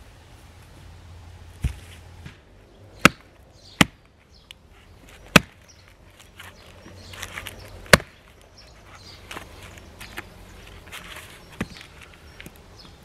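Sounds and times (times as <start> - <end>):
wood cracking: 3.0 - 8.5
knife batoned through log knocks: 5.3 - 5.6.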